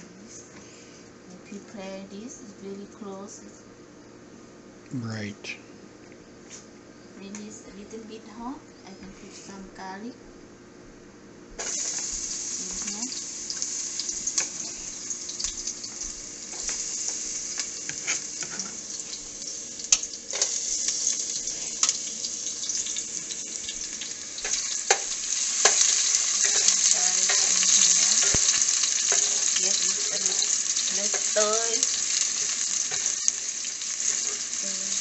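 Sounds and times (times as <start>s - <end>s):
garlic sizzling in hot oil: 11.6s - 35.0s.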